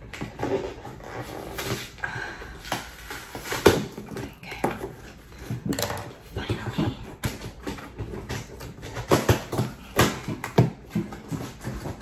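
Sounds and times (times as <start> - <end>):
cardboard scraping and tearing: 0.1 - 2.0.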